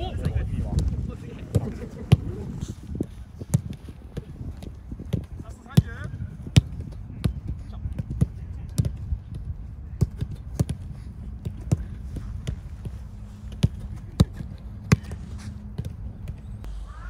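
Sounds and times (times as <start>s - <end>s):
footballs being kicked: 0.0s - 16.5s
steady low rumble: 0.0s - 17.0s.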